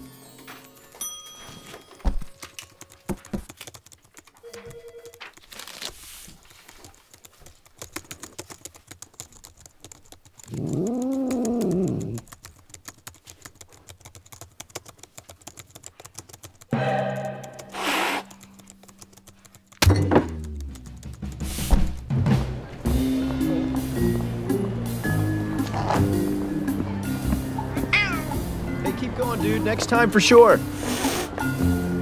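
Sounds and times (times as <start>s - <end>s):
keyboard typing: 2.2s - 22.1s, 28.0s - 28.5s
cat meowing: 27.9s - 28.5s.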